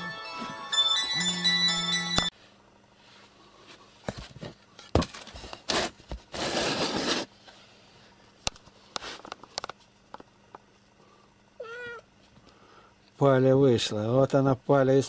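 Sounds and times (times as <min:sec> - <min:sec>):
rustling scrapes: 0:05.1 - 0:07.6.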